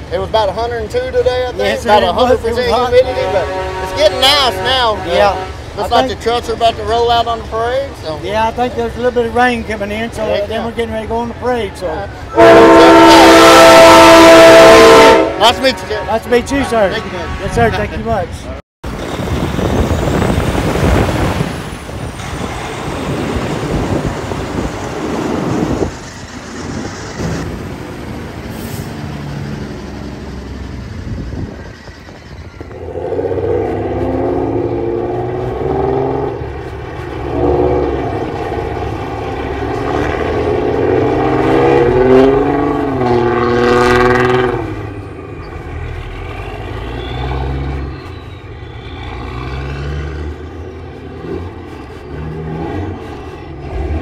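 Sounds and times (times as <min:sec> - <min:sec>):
diesel truck engines: 0:00.0 - 0:54.0
multi-note air horn blasts: 0:02.7 - 0:05.8, 0:12.3 - 0:18.0.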